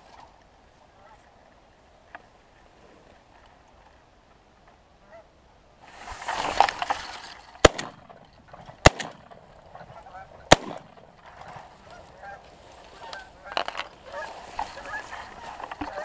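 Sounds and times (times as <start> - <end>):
shotgun shots: 7.6 - 8.2, 8.8 - 9.4, 10.5 - 11.2
geese honking: 9.6 - 16.0.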